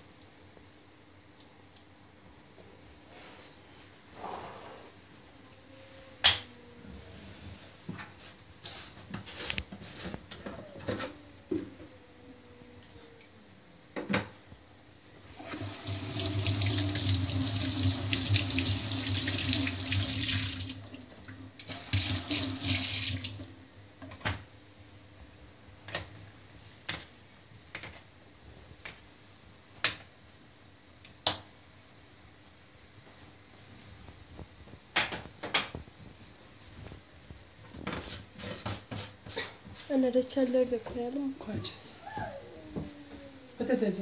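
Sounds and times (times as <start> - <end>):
tap water running into metal bowl: 15.5 - 20.8, 21.6 - 23.5.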